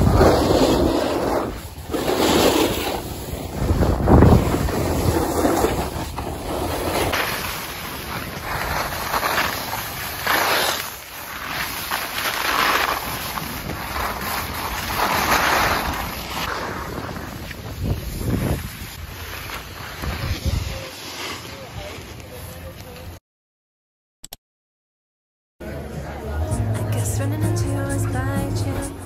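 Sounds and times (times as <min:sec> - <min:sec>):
wind on microphone: 0:00.0 - 0:07.1, 0:13.0 - 0:19.2, 0:19.8 - 0:20.9
skis hissing on packed snow: 0:00.0 - 0:22.6.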